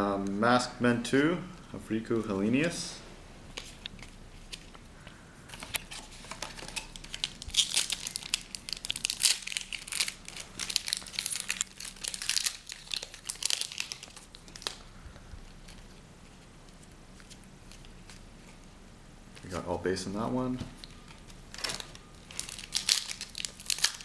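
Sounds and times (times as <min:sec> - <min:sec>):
foil wrapper crinkling and tearing: 0:05.6 - 0:14.9, 0:21.5 - 0:24.0.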